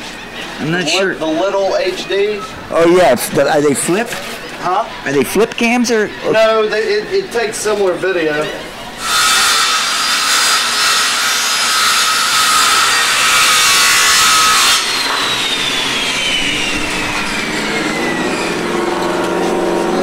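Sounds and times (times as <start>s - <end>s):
power tool motor whining: 9.0s - 20.0s.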